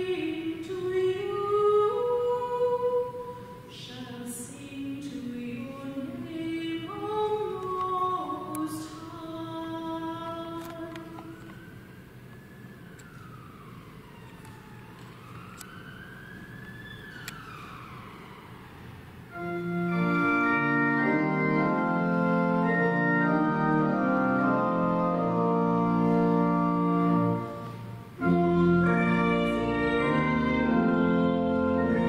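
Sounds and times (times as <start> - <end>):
faint siren wailing: 9.9 - 32.0
church organ playing chords: 19.2 - 32.0.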